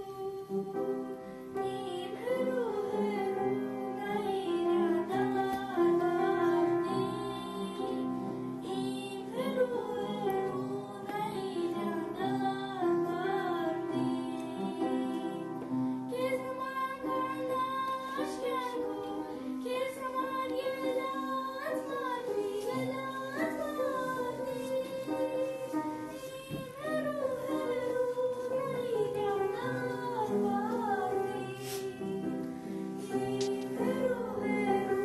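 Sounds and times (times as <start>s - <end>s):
girl singing into microphone: 0.0s - 35.0s.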